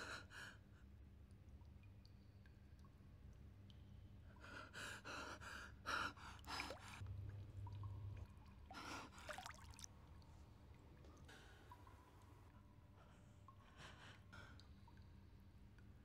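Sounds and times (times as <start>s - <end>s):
faint low hum: 6.2s - 16.0s.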